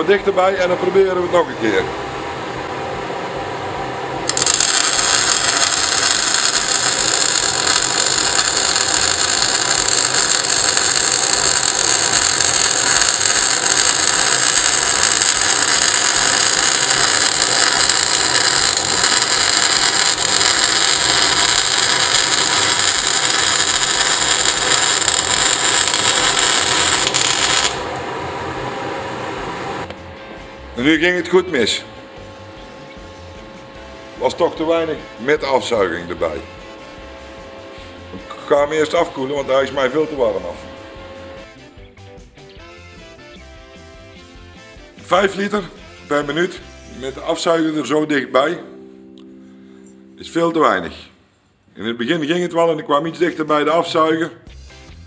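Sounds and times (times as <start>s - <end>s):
extractor fan humming: 0.0s - 41.7s
welding arc crackling: 4.2s - 28.1s.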